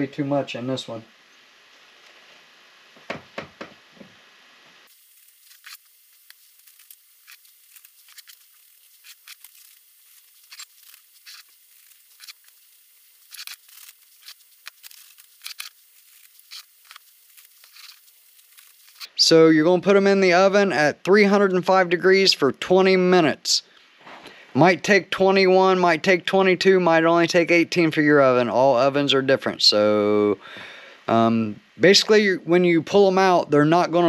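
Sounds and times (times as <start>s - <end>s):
paper crinkling: 4.9s - 19.1s.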